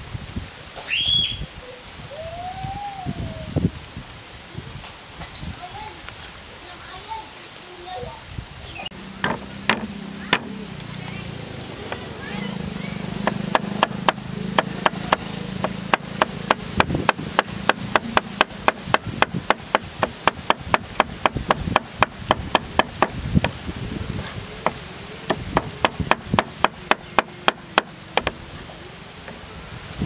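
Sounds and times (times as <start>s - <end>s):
cleaver chopping on wooden board: 9.2s - 10.6s, 13.2s - 23.6s, 24.6s - 28.4s.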